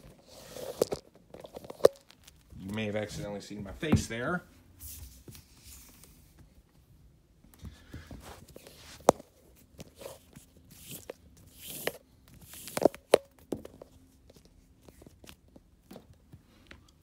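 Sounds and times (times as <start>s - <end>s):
power cord rustling on carpet: 7.8s - 12.9s.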